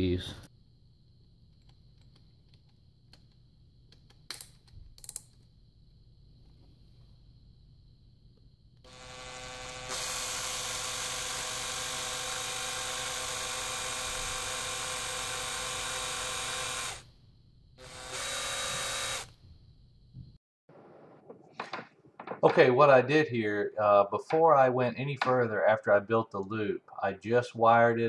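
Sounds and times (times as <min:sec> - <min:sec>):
drill motor whine: 0:08.8 - 0:17.1, 0:17.8 - 0:19.4.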